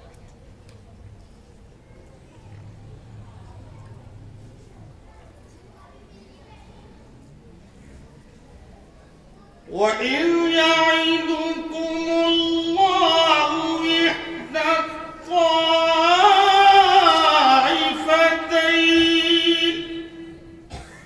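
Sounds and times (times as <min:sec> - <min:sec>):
man chanting melodically: 0:09.7 - 0:20.6.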